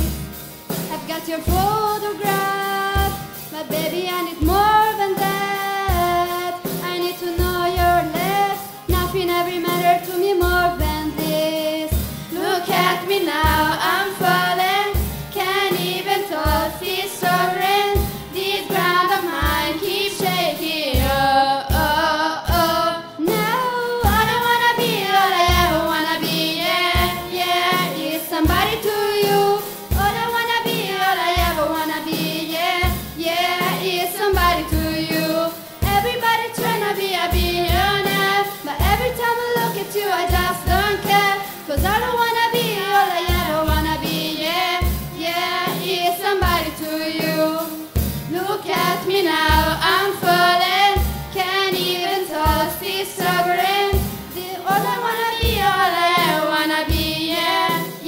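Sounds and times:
guitar backing: 0.0s - 21.3s
girls singing pop song: 0.7s - 58.0s.

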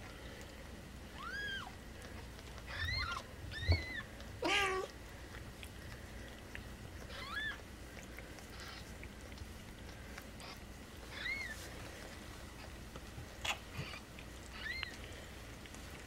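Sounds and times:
kittens mewing: 2.6s - 5.0s, 7.0s - 7.7s, 8.4s - 9.1s, 10.4s - 11.6s, 13.4s - 15.1s.

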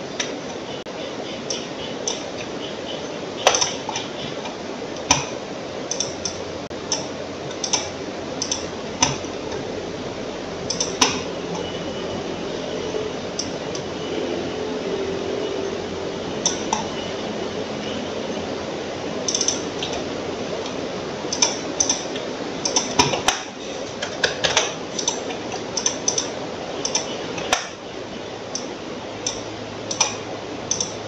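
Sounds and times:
computer mouse clicking: 5.9s - 9.2s, 28.6s - 31.0s.

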